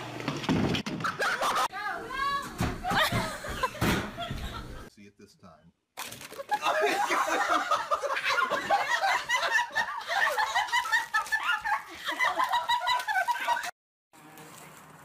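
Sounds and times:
people laughing hard: 1.0 - 1.7, 2.8 - 4.9, 6.4 - 13.7.

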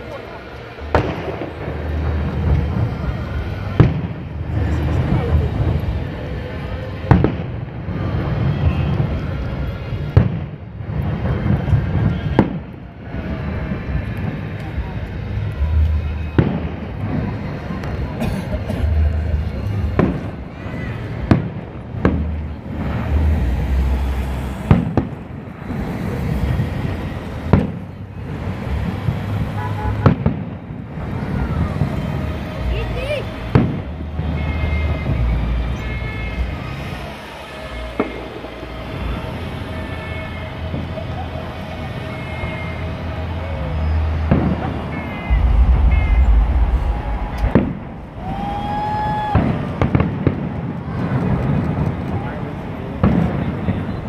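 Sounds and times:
sharp bangs: 44.3 - 50.4
steady high tone: 45.0 - 48.8
low rumble: 45.2 - 49.8.

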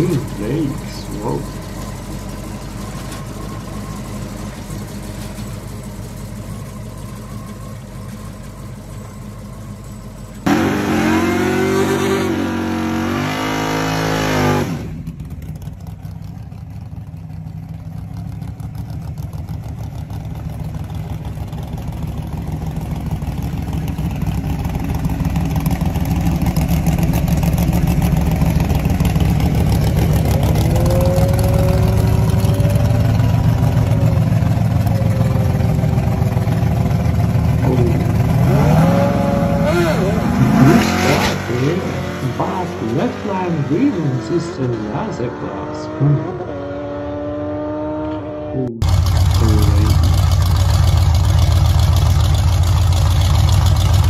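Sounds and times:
engine running at low speed: 0.0 - 54.0
engine revving loudly: 10.4 - 15.0, 30.2 - 33.8, 37.6 - 50.2
engine at high revs burnout: 10.4 - 15.1, 29.5 - 33.9, 37.6 - 50.1.

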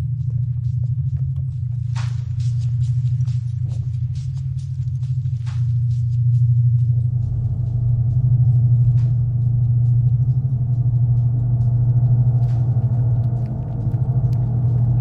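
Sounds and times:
loud low throbbing drone: 0.0 - 15.0
higher sustained tones: 6.8 - 15.0.

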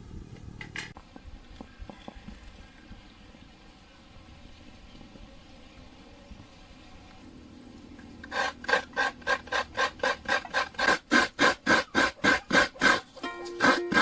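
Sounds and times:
coconut grater rasping: 8.2 - 14.0.

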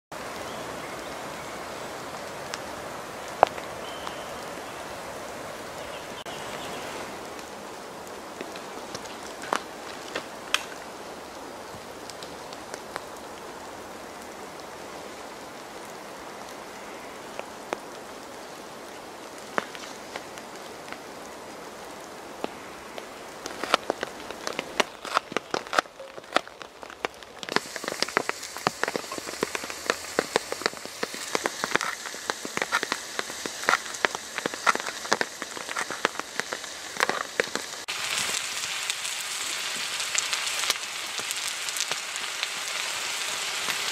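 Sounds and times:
rain pattering: 0.1 - 43.9
sharp raindrop ticks: 2.4 - 4.5, 7.3 - 11.0, 11.7 - 13.5, 16.4 - 21.1, 22.4 - 43.9.

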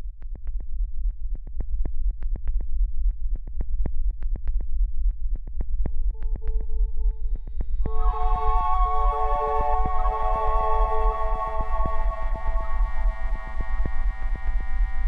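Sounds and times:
sustained two-note tone: 7.8 - 15.0.

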